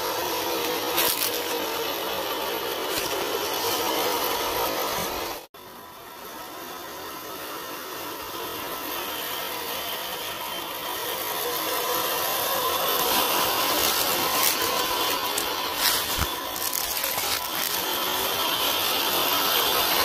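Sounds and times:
electric motor and gearbox whining: 0.0s - 20.0s.

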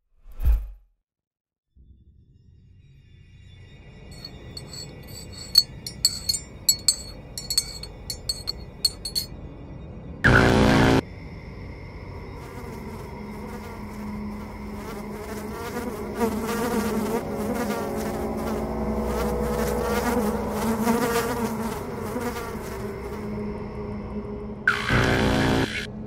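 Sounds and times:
flies buzzing: 12.4s - 23.4s.

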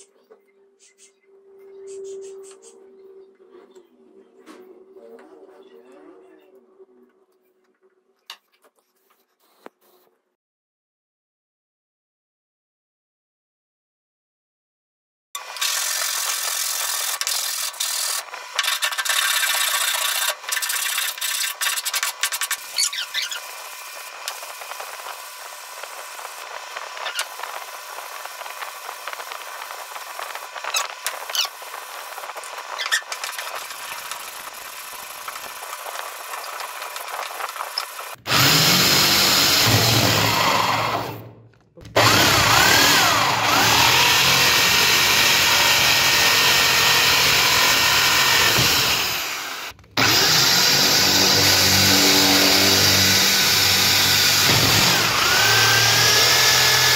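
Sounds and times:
drill cutting through wood: 15.4s - 56.9s
wood rubbing on sandpaper: 25.9s - 38.2s.

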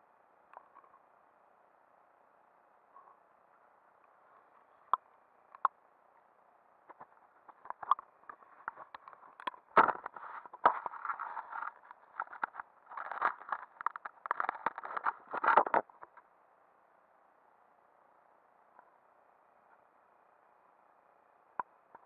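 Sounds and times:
muffled underwater clicks and scrapes: 6.9s - 16.3s.

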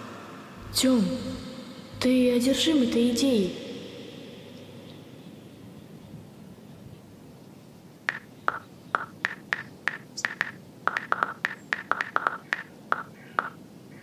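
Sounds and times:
smartphone keyboard taps: 8.1s - 13.6s.

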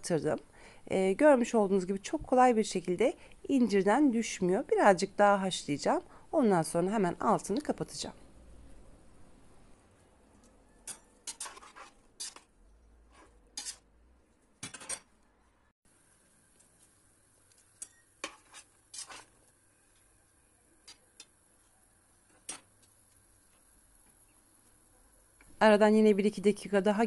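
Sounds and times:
figs boiling in pot: 15.9s - 27.0s.

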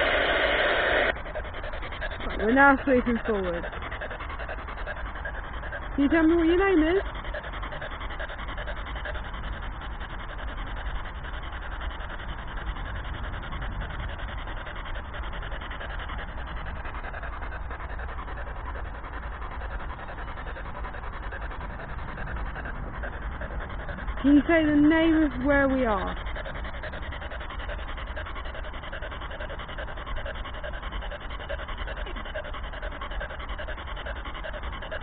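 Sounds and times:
radio static hiss: 0.0s - 1.1s.

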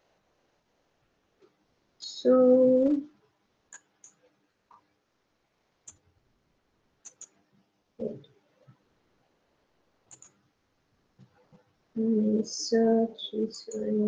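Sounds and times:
faint computer mouse clicks: 7.0s - 7.4s, 10.1s - 10.4s.

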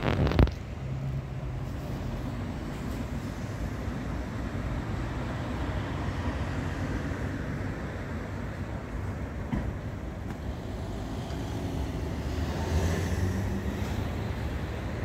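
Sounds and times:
street traffic rumble: 0.0s - 15.0s
vehicle passing: 10.7s - 14.7s.

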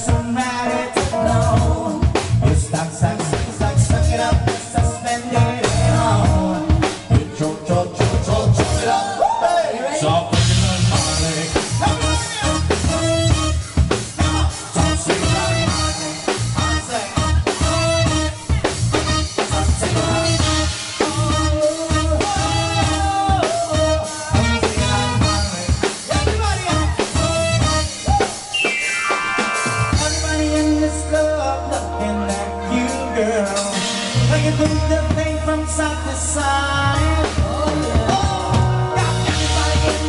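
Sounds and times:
steady drum beat: 0.0s - 9.2s, 10.2s - 40.0s
electronic keyboards: 10.3s - 40.0s.

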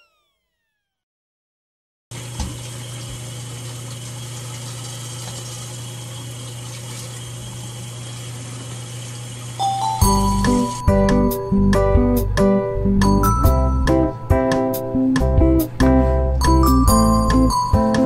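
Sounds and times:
tap running into steel sink: 2.2s - 3.2s
music: 9.6s - 18.0s.

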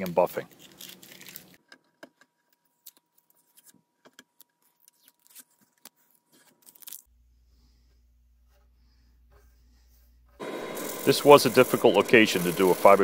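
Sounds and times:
low steady hum: 7.1s - 12.8s.

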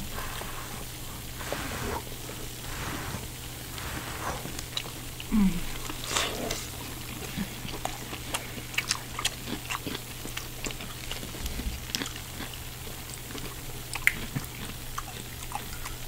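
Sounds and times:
steady low hum: 0.0s - 16.0s
chewing and wet mouth smacks: 4.5s - 16.0s.

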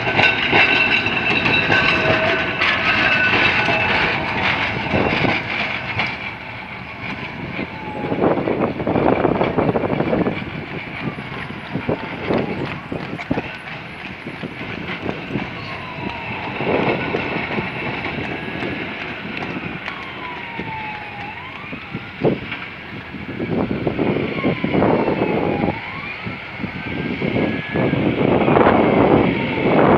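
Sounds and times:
wheels knocking on rail joints: 0.0s - 23.8s
tram motors whining: 0.0s - 29.9s
tram rumble: 0.0s - 29.9s.

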